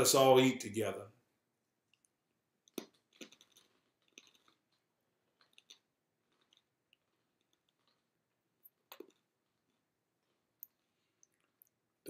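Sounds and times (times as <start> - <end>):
soft mouth clicks chewing: 1.8 - 11.8.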